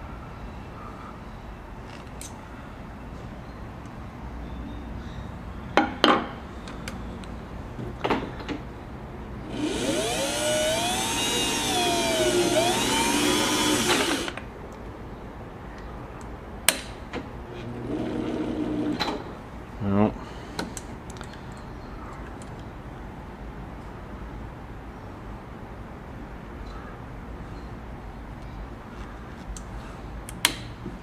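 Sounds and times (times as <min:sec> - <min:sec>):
sewing machine running: 0:09.5 - 0:14.4.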